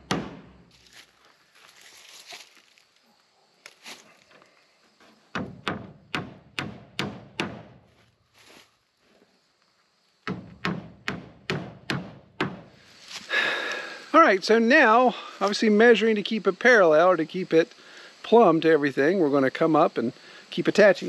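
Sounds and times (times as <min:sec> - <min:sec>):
hammer driving nails into wood: 0:00.0 - 0:00.5, 0:05.4 - 0:07.7, 0:10.3 - 0:12.6.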